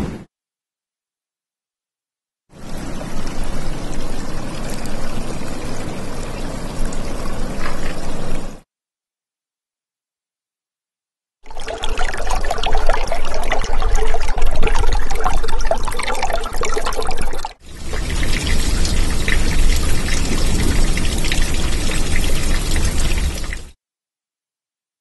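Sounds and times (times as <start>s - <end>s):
water trickling with crackles: 2.6s - 8.6s, 11.4s - 23.8s
water rushing with deep rumble: 11.5s - 23.6s.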